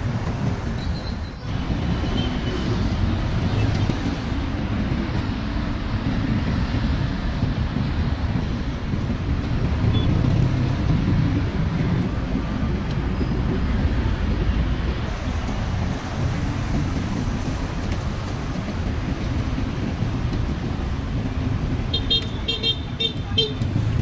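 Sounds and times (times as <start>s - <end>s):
street traffic rumble: 0.0s - 24.0s.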